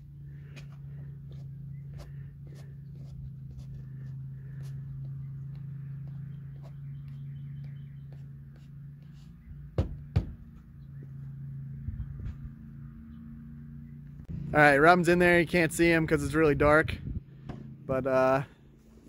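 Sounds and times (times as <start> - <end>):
steady low hum: 0.0 - 19.0
sharp knocks on metal door jamb: 9.7 - 10.5.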